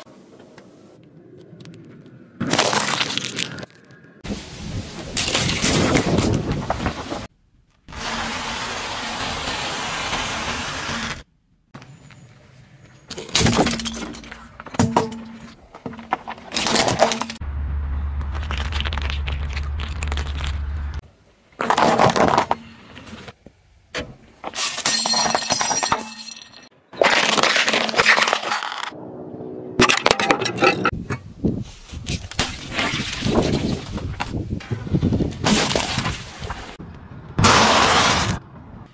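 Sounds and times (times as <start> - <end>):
objects crunching under car tyre: 1.4 - 4.2, 21.6 - 23.4, 26.9 - 29.0, 31.9 - 36.8, 37.4 - 38.4
car tyre crushing objects: 21.6 - 23.4, 26.9 - 28.9, 37.4 - 38.5.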